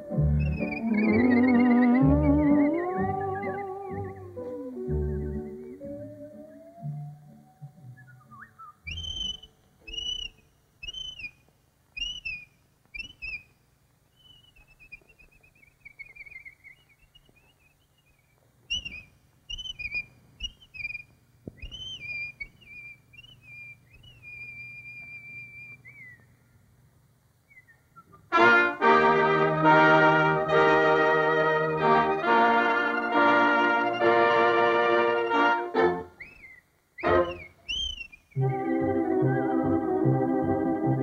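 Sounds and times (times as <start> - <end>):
whistled bird chirps: 0.4 - 11.4, 12.0 - 13.5, 14.1 - 26.4, 27.5 - 28.3, 36.2 - 39.5.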